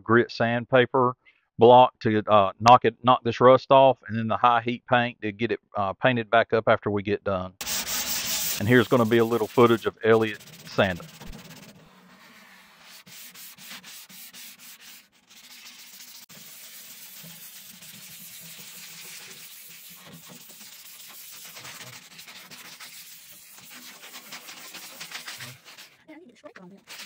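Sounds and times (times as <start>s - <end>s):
sanding sponge rubbing on metal: 7.6s - 27.0s.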